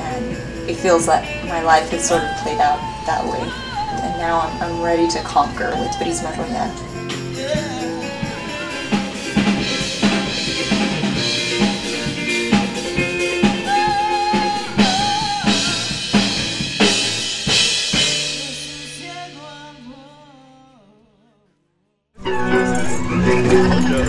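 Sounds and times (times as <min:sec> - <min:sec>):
drum kit beat: 0:00.0 - 0:19.7
rock band music: 0:00.0 - 0:19.8
person singing: 0:01.4 - 0:16.6, 0:18.0 - 0:21.4.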